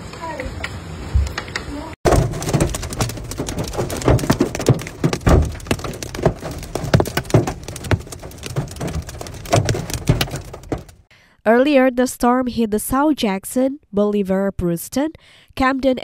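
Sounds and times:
hail pelting car roof: 2.1 - 11.1.

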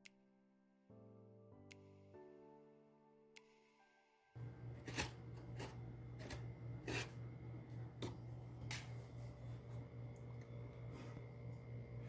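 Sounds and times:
low hum: 4.4 - 12.0.

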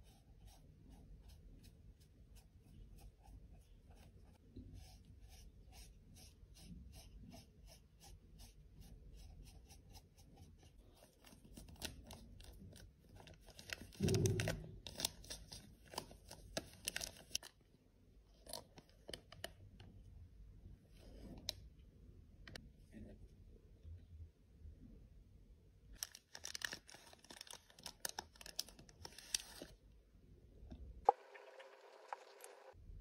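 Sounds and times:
brush sweeping powder off paper: 0.0 - 11.3
plastic bag crinkling: 26.0 - 29.7.

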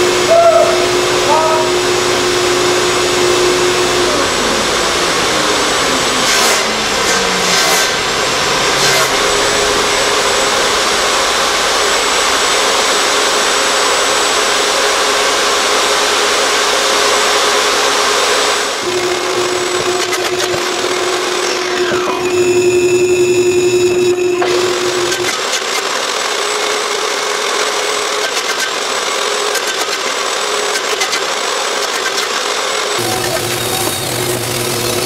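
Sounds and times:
band sawmill sawing log: 0.0 - 22.2, 24.4 - 35.0
machine hum with low tone: 0.0 - 25.4, 33.0 - 35.0.

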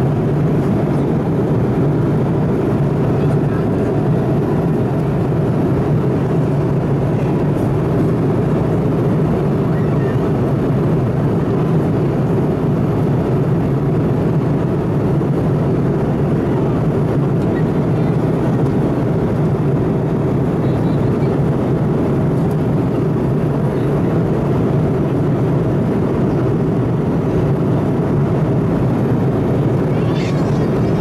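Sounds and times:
airplane cabin roar: 0.0 - 31.0
steady hum: 0.0 - 31.0.

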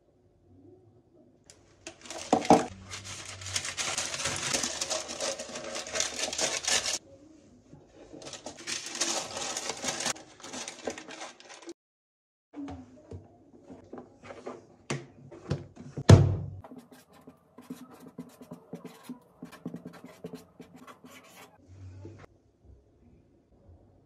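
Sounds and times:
marker pen scratching: 16.7 - 21.6.

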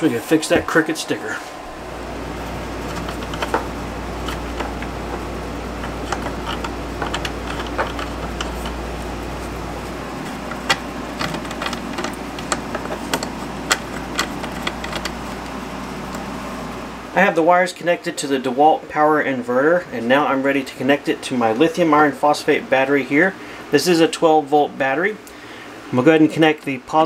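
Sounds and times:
low hum: 0.0 - 17.2.

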